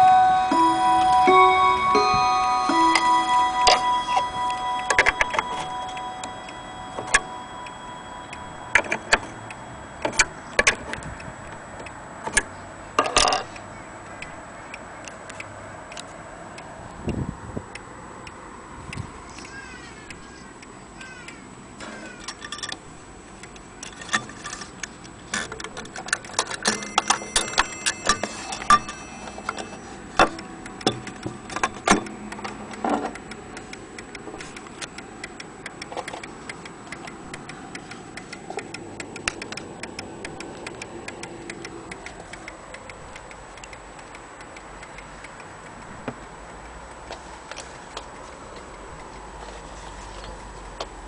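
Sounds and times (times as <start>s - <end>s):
loud clicks and metallic rings: 0.0s - 11.6s, 12.2s - 13.6s, 21.8s - 22.9s, 23.8s - 24.7s, 25.3s - 33.4s
wall clock ticking: 0.0s - 12.6s, 24.9s - 49.4s.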